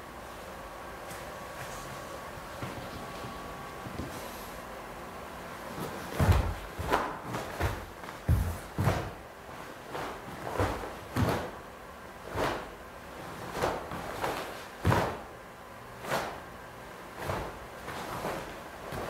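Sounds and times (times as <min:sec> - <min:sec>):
bare feet striking a mat: 0:05.7 - 0:11.6, 0:12.2 - 0:15.3, 0:17.2 - 0:19.0.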